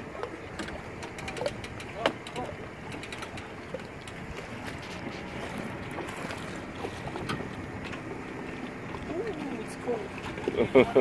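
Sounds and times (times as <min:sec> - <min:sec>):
water lapping: 0:00.0 - 0:11.0
faint clicks: 0:00.6 - 0:05.4.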